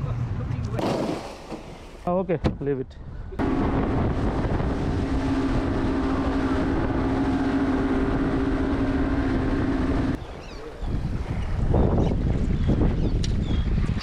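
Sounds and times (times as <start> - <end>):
boat engine droning: 3.4 - 11.1
wind and water rushing: 3.4 - 14.0.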